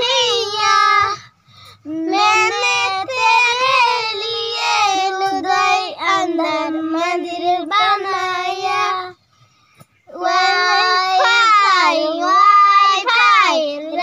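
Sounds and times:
girls singing together: 0.0s - 1.2s, 1.9s - 9.2s, 10.1s - 14.0s.

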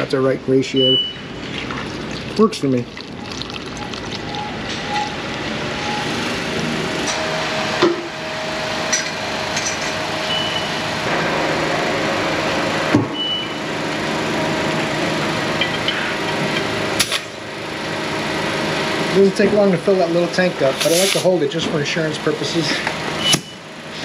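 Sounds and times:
compressed air hissing: 20.8s - 21.3s.

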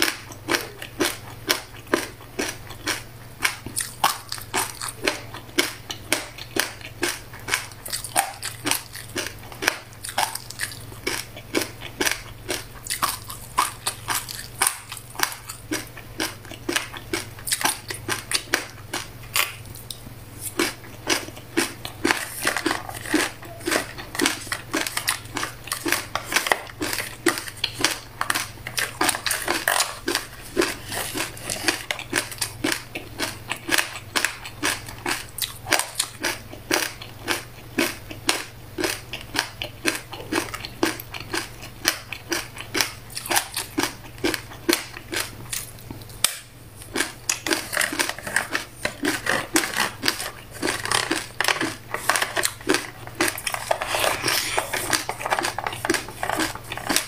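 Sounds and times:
crunchy grains being chewed: 0.0s - 57.0s.

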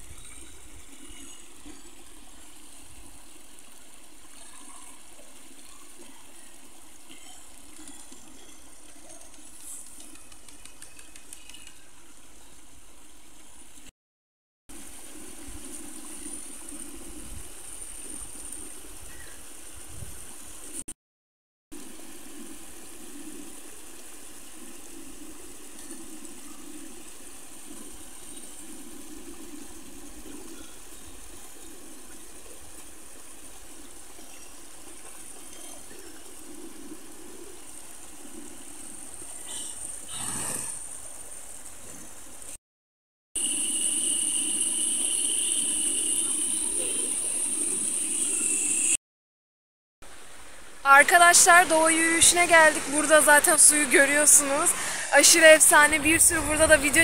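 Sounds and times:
stream running over rocks: 0.0s - 11.4s, 14.7s - 20.8s, 21.7s - 42.6s, 50.0s - 57.0s.

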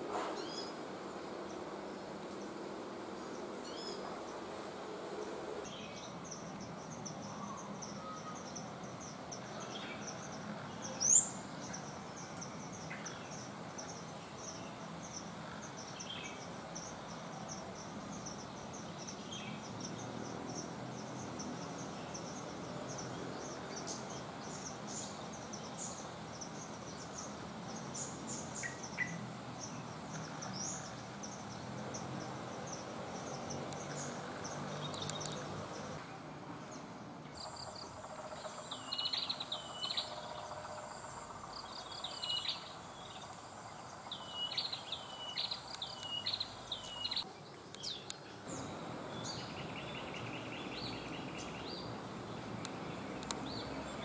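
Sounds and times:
small birds chirping: 5.6s - 36.0s, 36.7s - 54.0s
outdoor hiss: 37.3s - 54.0s
high insect whine: 37.4s - 47.2s.

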